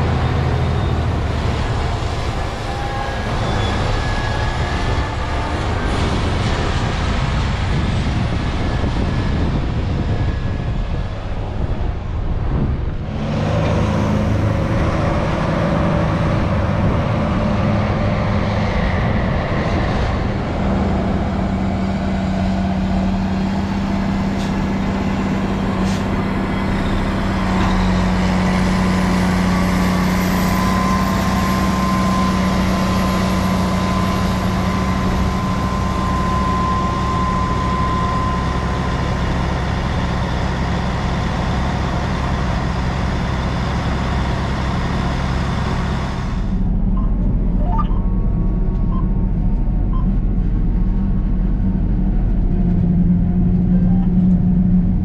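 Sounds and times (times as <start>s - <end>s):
diesel engines running under load: 0.0s - 55.0s
high whine: 46.2s - 54.0s.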